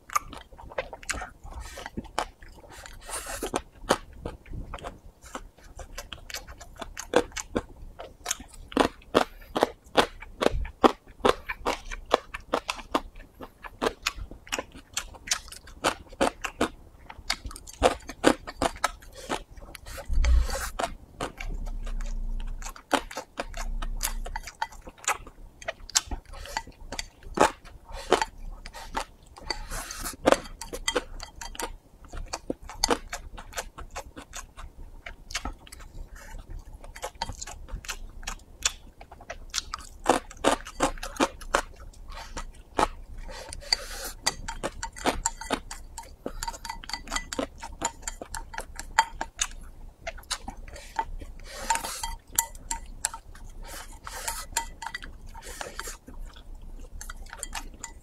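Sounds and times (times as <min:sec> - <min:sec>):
close chewing: 0:00.0 - 0:58.0
chopsticks clicking on ceramic bowl: 0:44.4 - 0:49.6.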